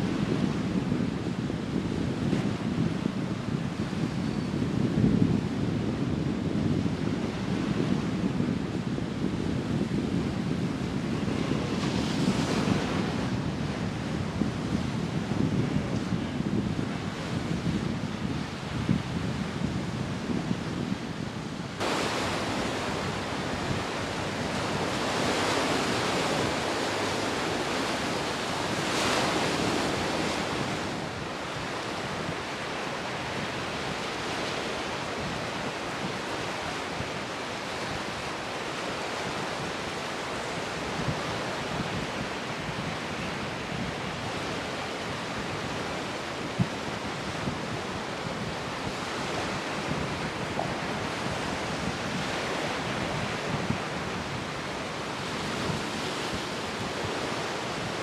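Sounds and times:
wind buffeting microphone: 0.0s - 58.0s
breaking waves: 21.1s - 58.0s.

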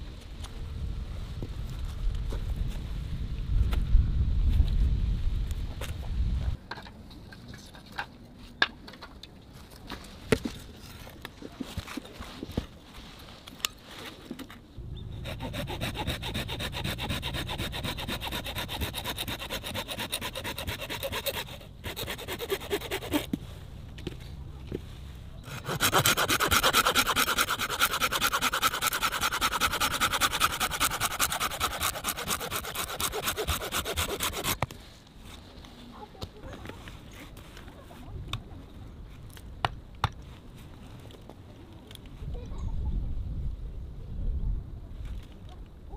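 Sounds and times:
hand saw cutting branch: 15.2s - 23.4s, 25.4s - 34.6s.

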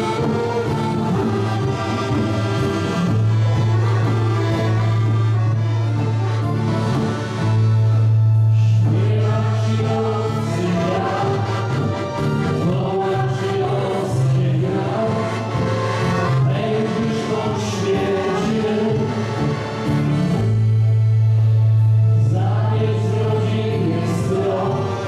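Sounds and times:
piano accordion: 0.0s - 25.0s
folk group singing in chorus: 8.6s - 20.1s, 22.2s - 25.0s.

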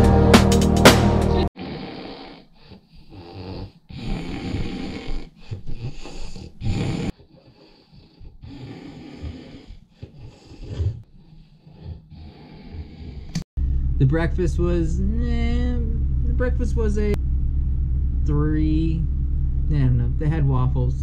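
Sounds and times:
music: 0.0s - 1.5s
man snoring: 1.5s - 13.5s.

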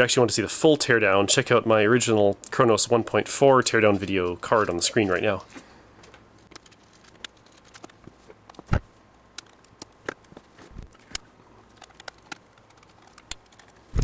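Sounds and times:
small parts clicking and tapping: 5.2s - 8.7s, 9.3s - 14.0s.

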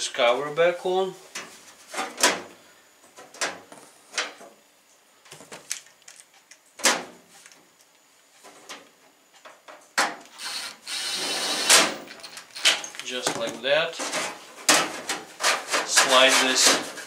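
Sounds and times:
cordless screwdriver running: 10.3s - 12.1s.

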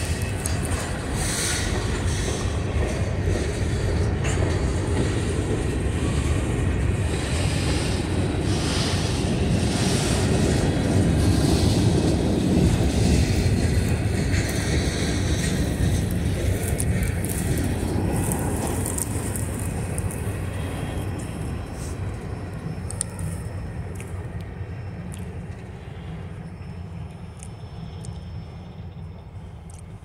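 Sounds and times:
train wheels on rails: 0.0s - 30.0s.

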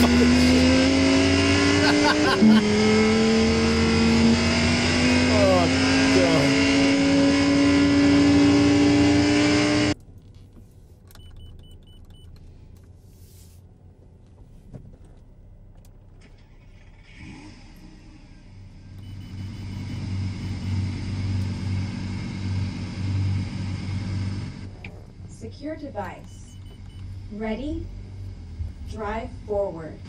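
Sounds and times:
low engine rumble: 0.0s - 6.3s, 9.9s - 30.0s
loud car exhaust: 0.0s - 10.0s, 17.2s - 26.1s.

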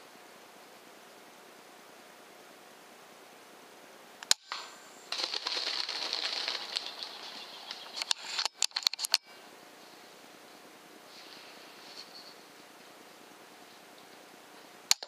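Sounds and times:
sharp clicks: 4.2s - 7.0s, 7.6s - 9.3s
air rifle shot: 4.3s - 4.9s
thrashing in dry leaves: 4.5s - 8.4s.

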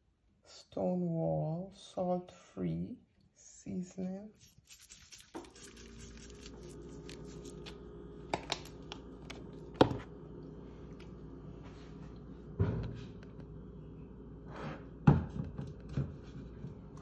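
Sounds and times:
steady low hum: 4.2s - 17.0s.

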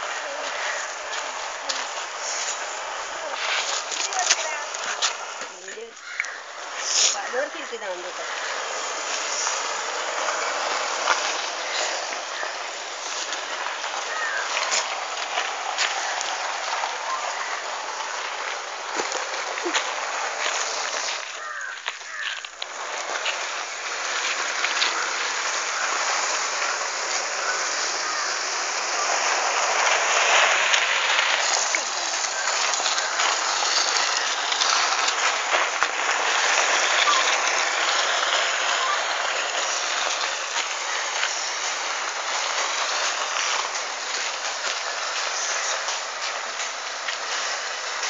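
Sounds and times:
leaf sheath scraping on road: 0.0s - 48.0s.

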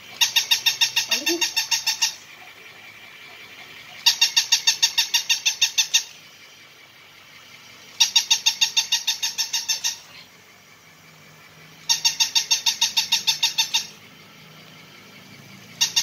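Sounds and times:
toy puppy electronic yips: 0.2s - 2.3s, 4.0s - 6.3s, 7.9s - 10.2s, 11.8s - 14.0s, 15.6s - 16.0s.

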